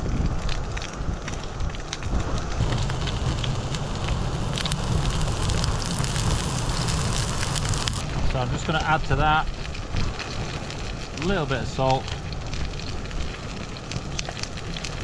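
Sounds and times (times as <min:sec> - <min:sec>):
food sizzling in oil: 0:02.6 - 0:08.2
low steady rumble: 0:02.6 - 0:08.6.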